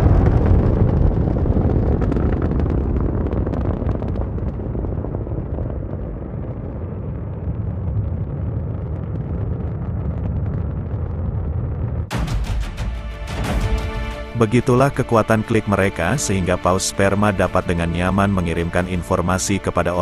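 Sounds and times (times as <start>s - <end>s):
rocket engines thundering: 0.0s - 12.2s.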